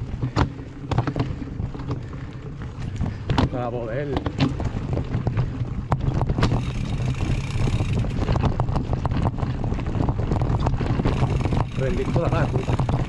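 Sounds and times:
bike rattling over roots: 0.0 - 13.0
wind on microphone: 0.0 - 13.0.

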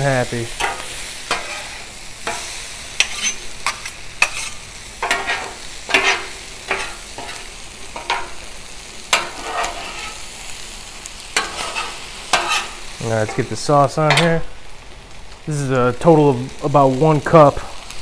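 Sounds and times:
food sizzling on griddle: 0.0 - 18.0
metal spatulas scraping griddle: 0.5 - 8.5, 9.1 - 10.4, 11.4 - 14.4.

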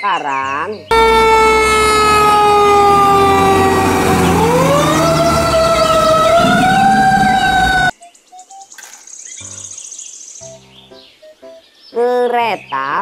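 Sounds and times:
fire truck siren: 0.9 - 7.9
truck rumbling: 0.9 - 7.9.

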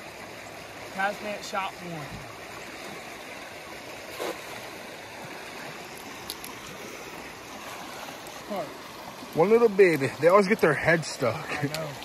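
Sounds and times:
river water rushing: 0.0 - 12.0.

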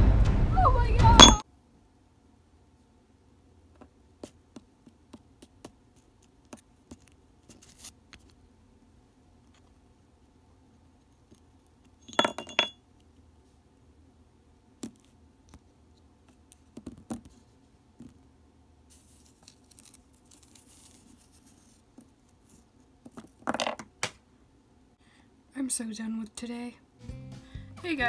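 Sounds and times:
ringing note: 1.2 - 1.4.

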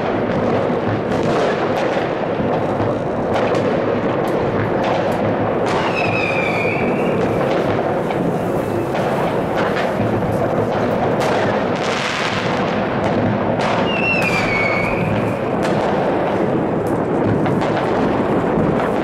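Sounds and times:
fireworks and firecrackers banging: 0.0 - 19.0
falling firework whistle: 5.7 - 7.7, 8.3 - 9.9, 13.6 - 15.6.

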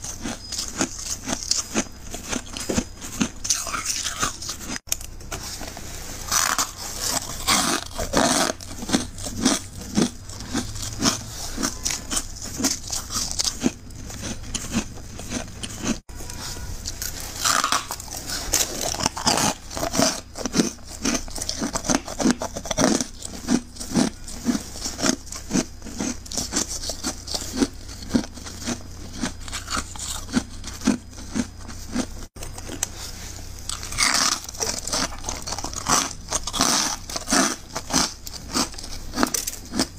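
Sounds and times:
crunchy chewing of frost: 0.0 - 39.9.

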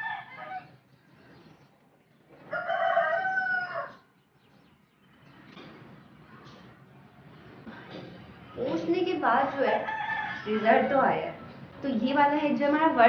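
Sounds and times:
rooster crowing: 0.0 - 0.7, 2.4 - 4.1, 9.7 - 11.5.

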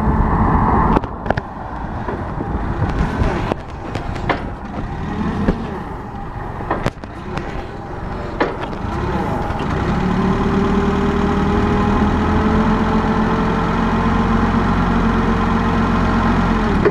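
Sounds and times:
faint whine: 0.0 - 9.9
forklift engine running: 0.0 - 16.9
knocks and rattles: 1.0 - 10.6.

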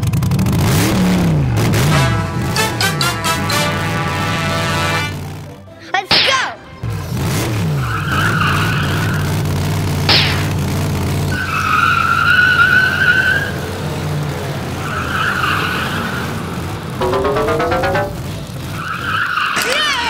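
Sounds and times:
tire squeals: 6.9 - 17.0, 18.4 - 20.0
short sharp crack: 10.1 - 10.6.

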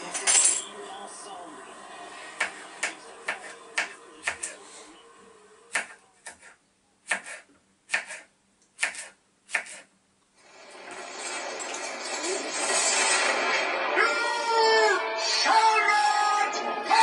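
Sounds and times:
knife chopping on cutting board: 5.7 - 9.9.

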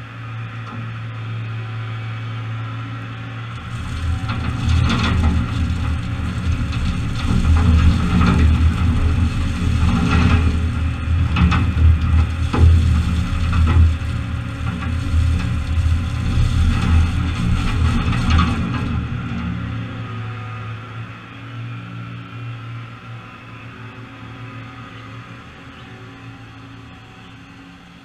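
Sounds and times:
tractor diesel engine running: 0.0 - 28.0
gravel pouring onto trailer: 3.5 - 20.2.

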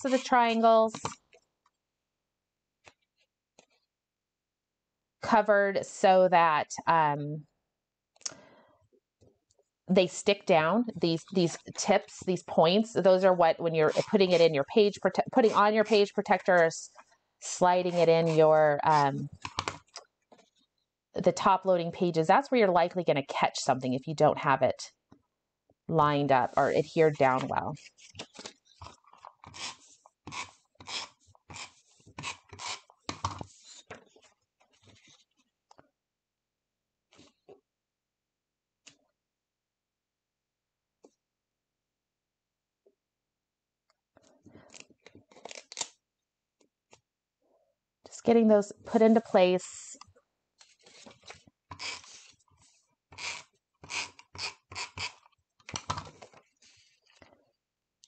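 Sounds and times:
tape runner drawn across paper: 13.8 - 14.6, 17.8 - 19.4, 29.4 - 34.0, 50.6 - 55.3.

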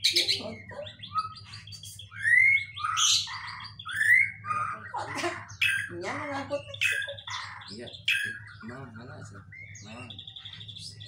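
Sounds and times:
songbird singing whistled phrases: 0.0 - 4.9
sharp bird chirps: 0.0 - 6.1.

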